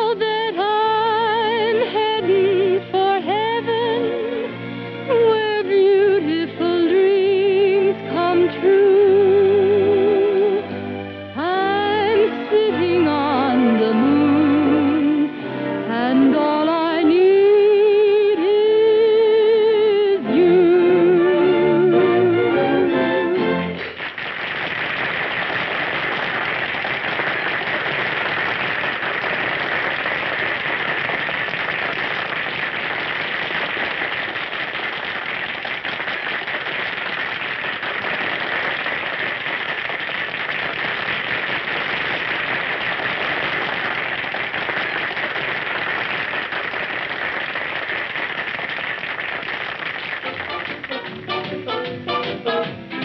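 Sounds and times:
audience applauding: 23.7 - 52.6.

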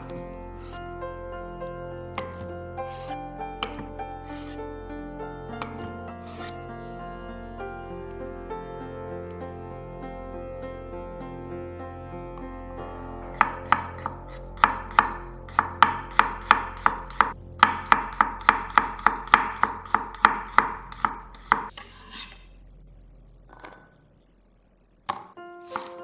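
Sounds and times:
knife chopping on wooden board: 2.2 - 4.6, 13.4 - 21.7, 25.1 - 26.0.

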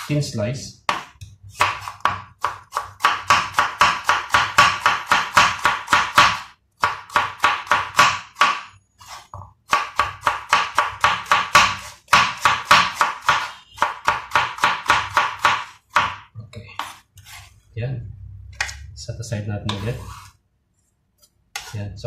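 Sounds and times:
knife chopping on wooden board: 0.8 - 17.4, 21.5 - 21.7.

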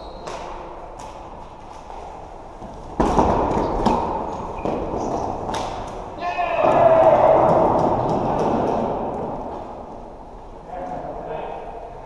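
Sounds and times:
sports hall noise: 0.0 - 12.0
ball striking rink boards: 1.9 - 9.8.

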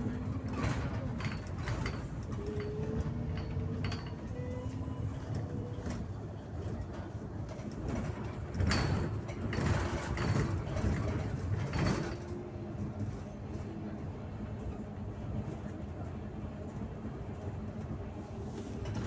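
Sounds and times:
bus engine and road rumble: 0.0 - 19.0
rattles and knocks: 0.1 - 6.1, 7.0 - 12.4.

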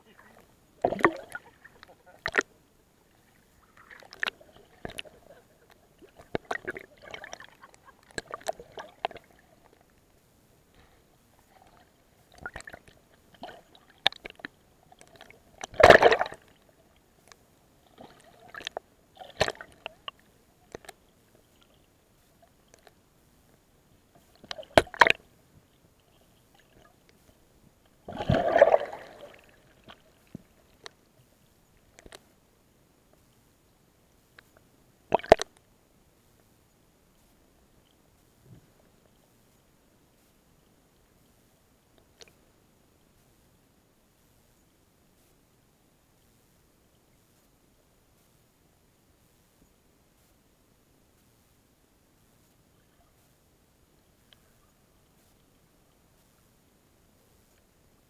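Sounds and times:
water sloshing and splashing: 0.2 - 2.5, 3.1 - 9.8, 11.4 - 16.7, 17.8 - 21.9, 28.0 - 30.9
water bubbling: 0.8 - 2.5, 28.1 - 30.1.

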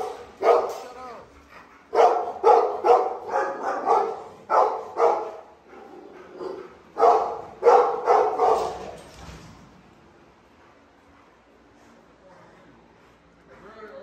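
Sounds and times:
dog barking: 0.0 - 1.0, 1.9 - 9.0.

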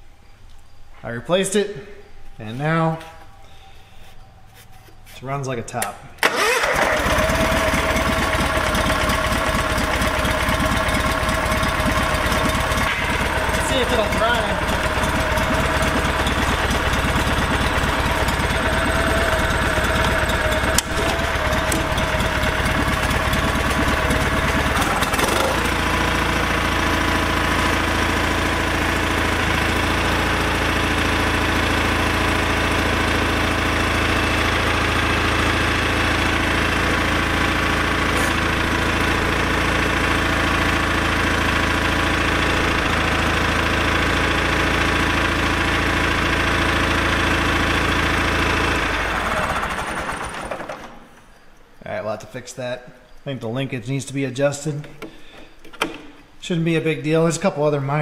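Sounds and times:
garden tractor engine running: 6.2 - 51.2.

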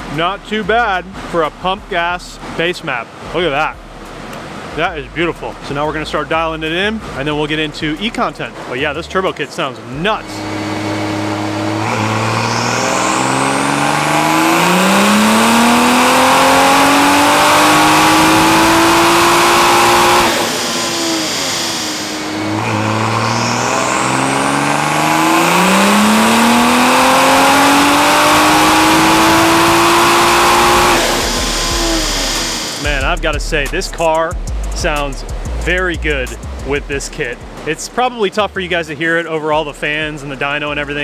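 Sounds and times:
high turbo whine: 0.0 - 41.0
car engine revving on dyno: 9.9 - 37.7.

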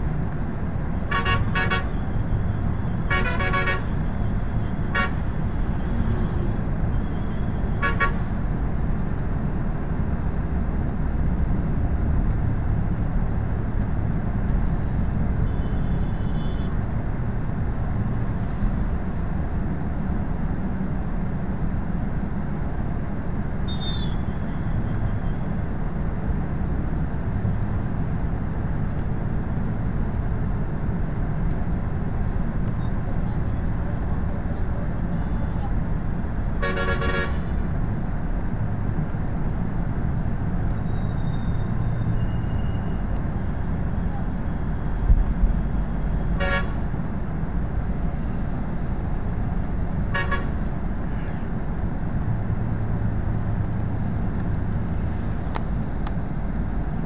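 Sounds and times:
bus engine and road rumble: 0.0 - 57.0
vehicle horn toots: 1.1 - 2.0, 3.1 - 3.9, 36.6 - 37.4, 46.4 - 46.8, 50.2 - 50.5.

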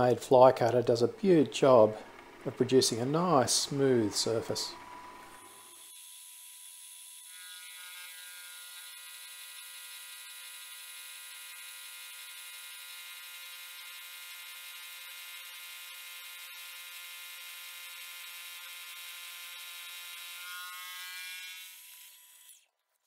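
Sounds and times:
milling spindle whine: 1.1 - 6.0.

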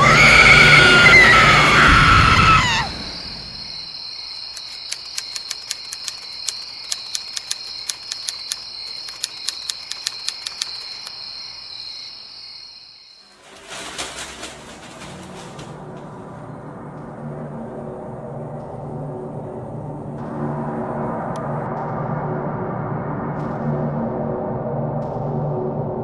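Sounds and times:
crickets chirping: 0.1 - 20.6.

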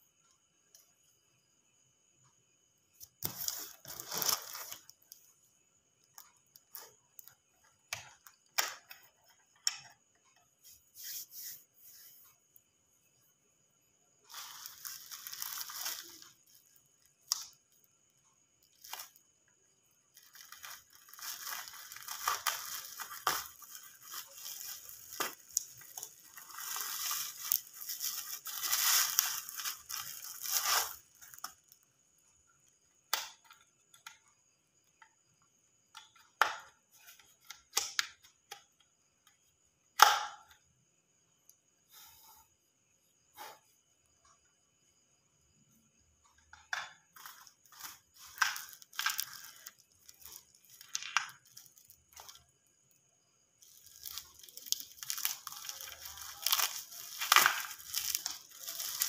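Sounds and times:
plastic wrap crinkling and tearing: 3.2 - 5.0, 14.3 - 17.6, 18.7 - 19.2, 20.1 - 31.8, 47.2 - 52.4, 53.6 - 59.0.

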